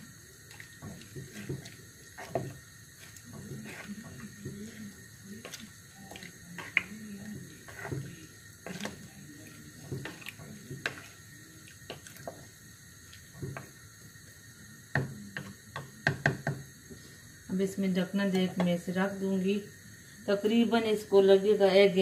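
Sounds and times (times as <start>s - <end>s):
wet stirring of food: 0.0s - 17.2s.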